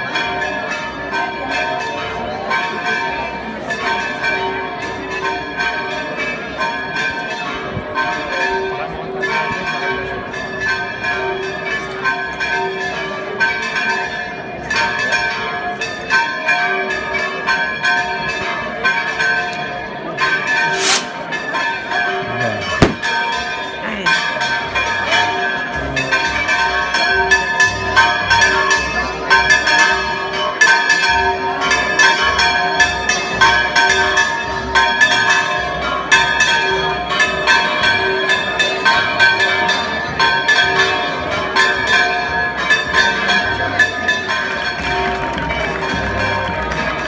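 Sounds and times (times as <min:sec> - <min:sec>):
church bells pealing: 0:00.0 - 0:47.0
brief sharp hiss: 0:20.7 - 0:21.2.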